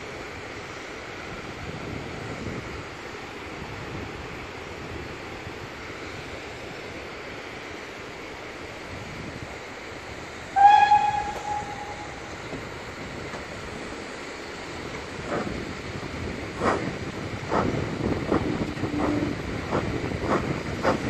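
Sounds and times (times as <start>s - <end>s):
steam locomotive whistle: 10.5s - 12.5s, 18.8s - 19.4s
steady rushing background: 12.2s - 21.0s.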